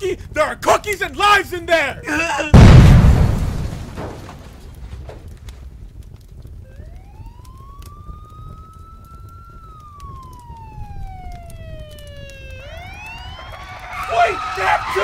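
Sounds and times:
emergency vehicle siren wailing: 6.6s - 15.0s.

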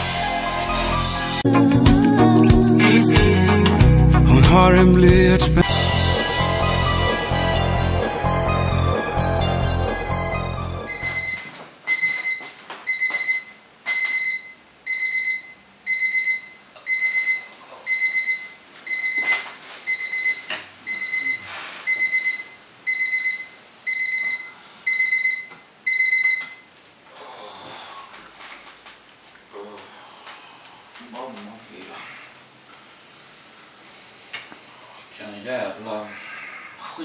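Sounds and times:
alarm clock beeping: 5.7s - 26.6s.

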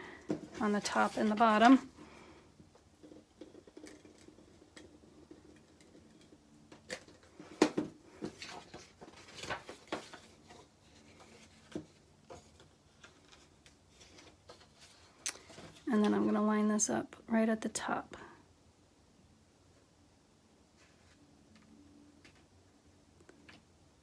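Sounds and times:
paper rustling: 8.1s - 15.8s.

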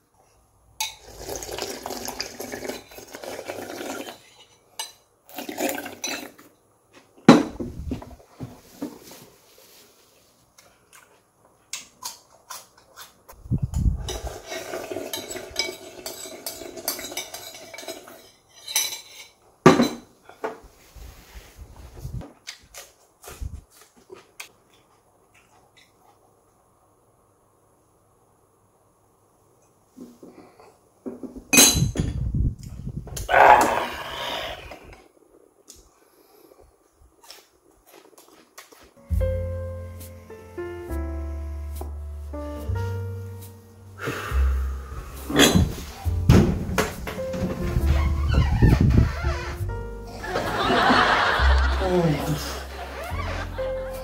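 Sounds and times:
cutlery clinking on dishes: 14.1s - 20.1s, 31.5s - 32.1s, 45.3s - 45.8s
dull thumps: 45.6s - 49.1s.

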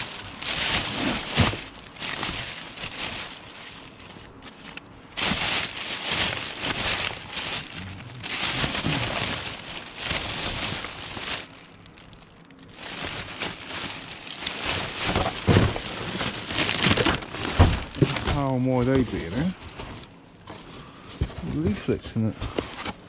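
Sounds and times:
plastic bin bags rustling: 0.0s - 20.7s
hands rummaging through papers: 0.0s - 21.8s.

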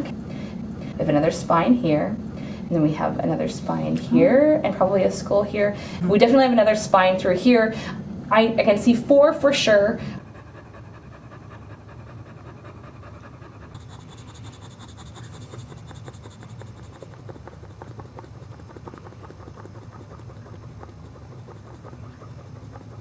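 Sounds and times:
dog panting: 9.6s - 23.0s.

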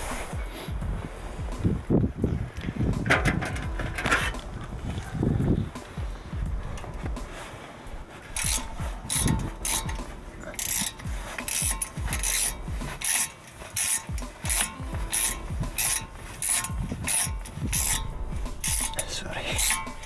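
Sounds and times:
hand ratchet clicking: 8.2s - 20.0s.

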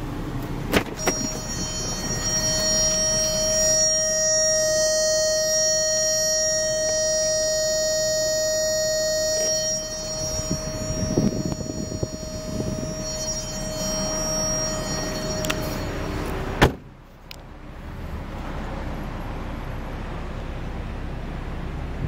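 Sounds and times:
high electronic warning tone: 1.0s - 16.6s.

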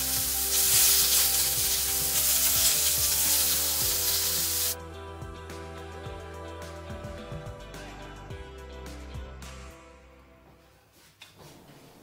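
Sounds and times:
vegetables sizzling in oil: 0.0s - 4.8s
background music: 0.0s - 11.1s.

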